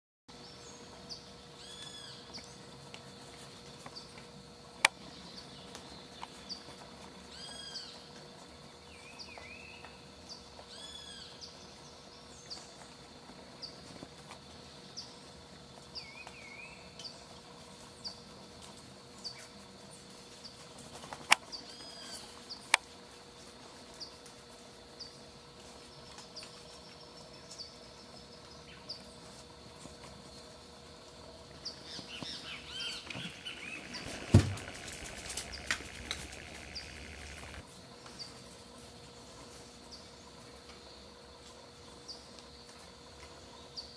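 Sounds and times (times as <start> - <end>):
faint steady hum: 0.3 - 43.9
birds warbling: 31.5 - 37.6
sharp clicks: 33.0 - 37.6.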